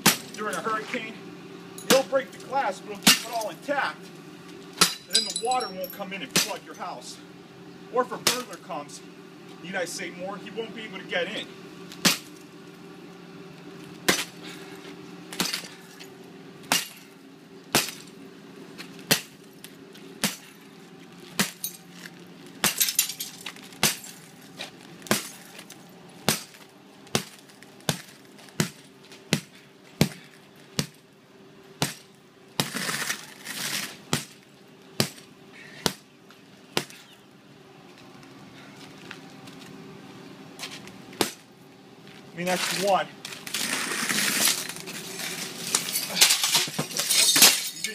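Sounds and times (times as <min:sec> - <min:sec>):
hammer striking glass: 0:04.8 - 0:06.5
cracked glass crunching and clinking: 0:04.8 - 0:06.6, 0:21.4 - 0:24.3, 0:43.4 - 0:47.9.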